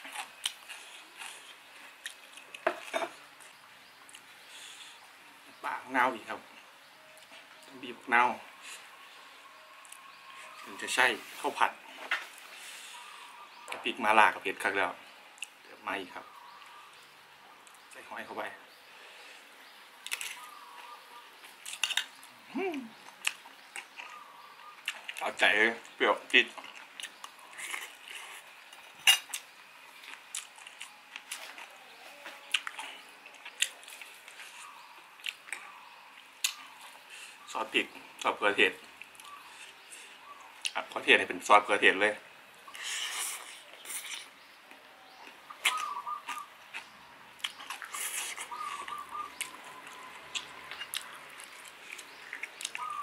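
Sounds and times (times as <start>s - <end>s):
person chewing rice: 0.0s - 2.9s, 26.6s - 31.8s, 32.4s - 37.3s, 45.2s - 53.0s
bird call: 45.0s - 47.0s, 48.2s - 51.1s, 52.1s - 53.0s.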